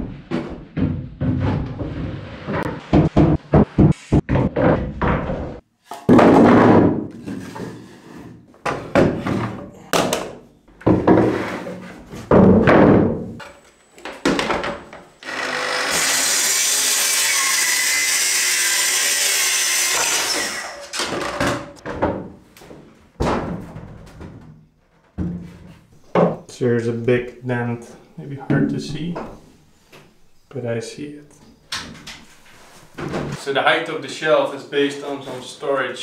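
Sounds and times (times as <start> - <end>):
hollow wooden thunks: 0.0 - 7.1
track saw cutting a panel: 15.2 - 21.0.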